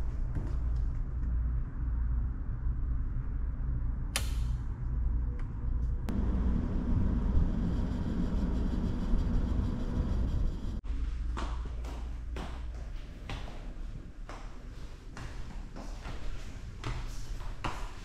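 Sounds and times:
low hum: 0:00.0 - 0:12.4.

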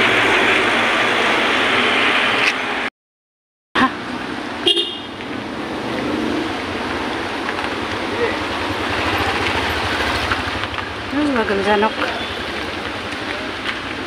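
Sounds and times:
street traffic: 0:00.0 - 0:02.9, 0:03.8 - 0:14.0
car horn toot: 0:04.6 - 0:05.2
truck driving past: 0:05.3 - 0:13.6.

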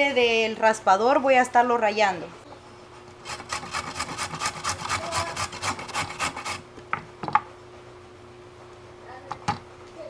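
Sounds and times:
carrot rasping on a metal grater: 0:03.2 - 0:06.6.

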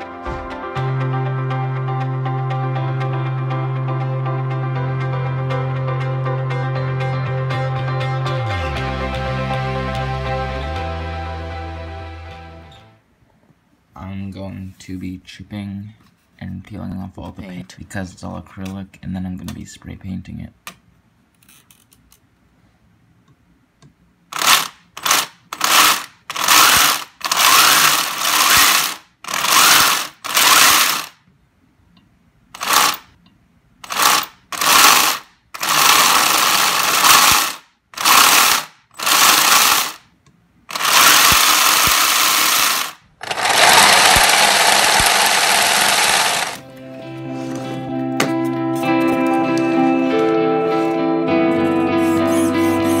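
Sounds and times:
toy snowmobile motor whirring: 0:40.7 - 0:46.6.

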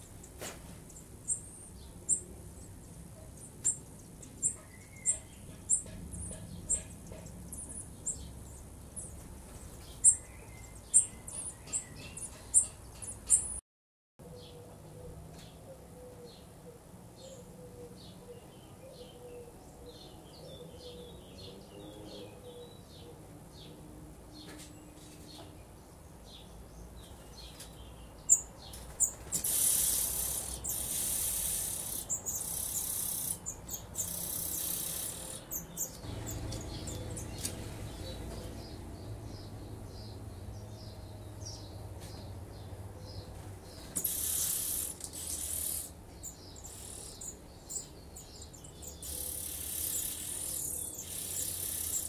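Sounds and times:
nestlings begging chorus: 0:03.4 - 0:09.1, 0:28.2 - 0:42.2, 0:43.0 - 0:52.0
faint bird chirps: 0:43.8 - 0:52.0.

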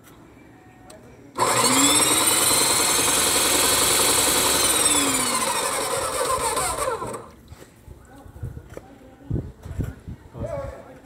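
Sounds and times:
paint sprayer pump whining: 0:01.4 - 0:07.4.

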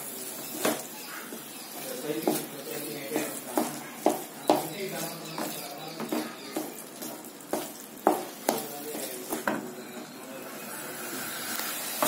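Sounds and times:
food sizzling in pan: 0:00.0 - 0:12.0
wooden spatula knocking pan: 0:00.4 - 0:09.8.

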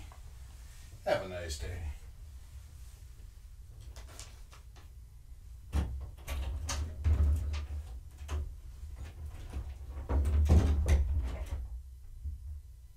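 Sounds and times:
knocks and rustles: 0:05.7 - 0:12.8.

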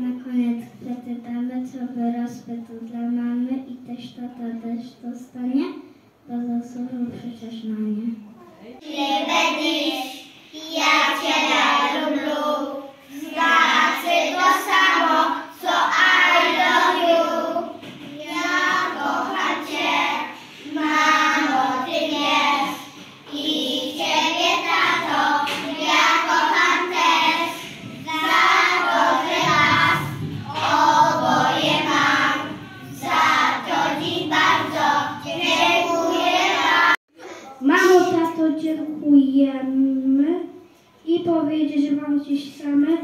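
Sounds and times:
children singing together: 0:08.8 - 0:37.0.

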